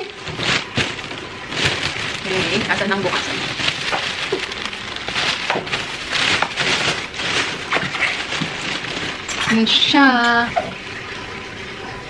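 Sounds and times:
plastic bag crinkling: 0.0s - 10.1s.

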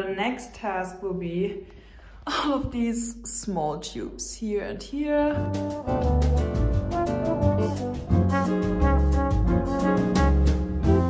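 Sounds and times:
background music with beat: 5.4s - 11.0s.

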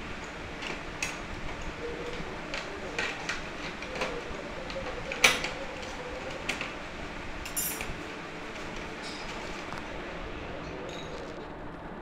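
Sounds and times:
metal parts clicking and clinking: 7.4s - 7.9s.

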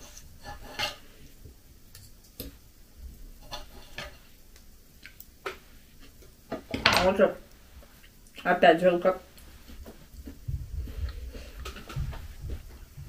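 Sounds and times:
cutlery scraping on plate: 0.0s - 1.1s, 3.4s - 4.2s.

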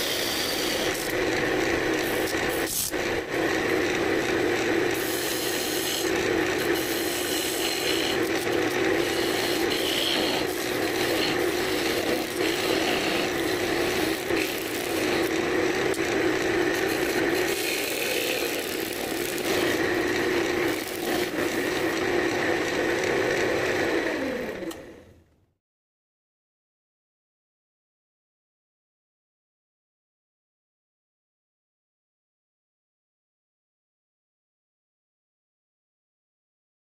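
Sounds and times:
wood lathe humming: 0.0s - 25.0s.

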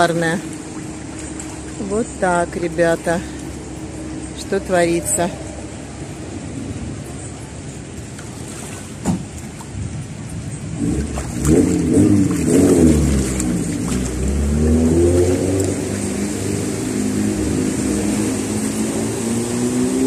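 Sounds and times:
car engine revving: 10.8s - 20.0s.

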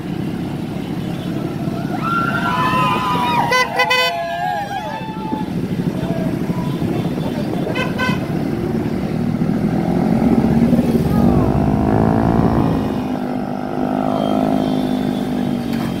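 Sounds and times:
motorcycle engine running: 5.5s - 15.6s.

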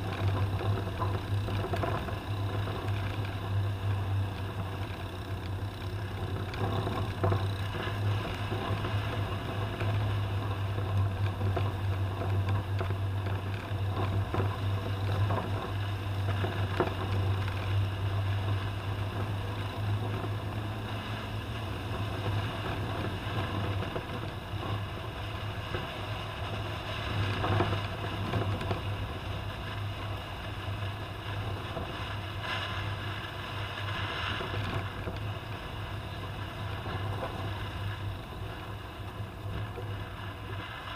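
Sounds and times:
car engine drone: 0.0s - 40.9s
road and wind noise: 0.0s - 40.9s.

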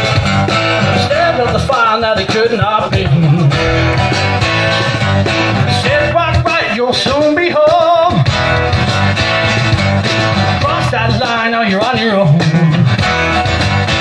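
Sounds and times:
bass guitar: 0.0s - 14.0s
keyboard: 0.0s - 14.0s
strummed acoustic guitar: 0.0s - 14.0s
man singing: 0.6s - 3.9s, 5.5s - 8.4s, 10.5s - 13.0s.

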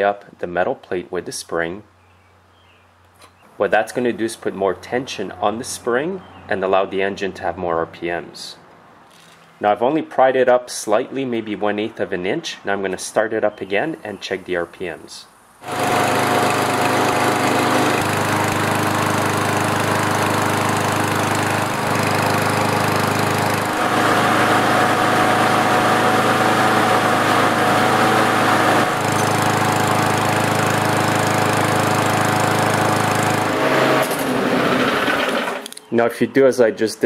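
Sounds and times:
lawn mower engine running: 15.6s - 35.8s.

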